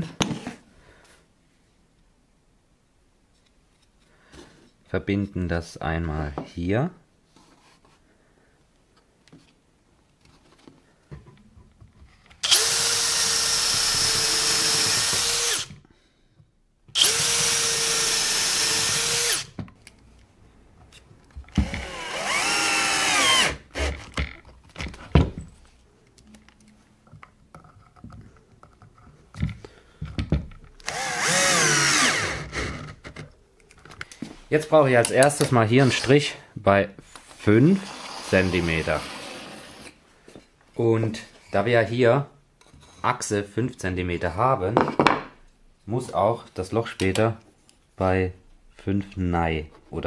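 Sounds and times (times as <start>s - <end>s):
cordless drill running: 12.4s - 15.7s, 17.0s - 19.5s, 21.5s - 24.7s, 30.8s - 33.7s.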